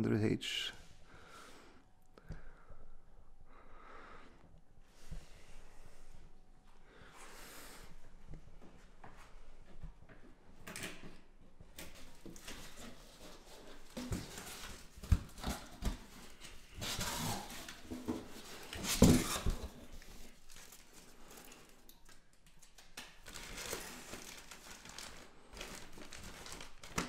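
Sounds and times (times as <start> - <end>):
plastic bags crinkling: 20.3 - 22.3, 23.2 - 27.0.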